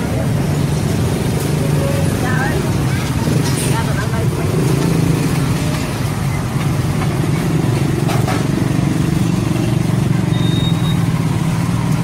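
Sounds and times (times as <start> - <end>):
high-pitched beep: 10.3 - 11.0.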